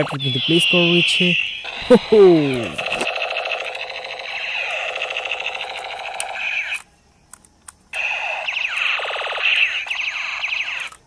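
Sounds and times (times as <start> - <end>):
warbling electronic tone: 0.0 - 6.7
falling electronic zaps: 0.0 - 6.9, 8.0 - 11.0.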